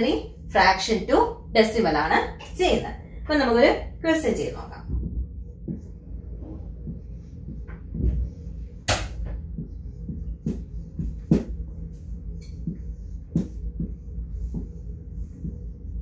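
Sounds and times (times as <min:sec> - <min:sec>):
steady low hum: 0:00.0 - 0:16.0
marker writing on whiteboard: 0:09.6 - 0:14.8.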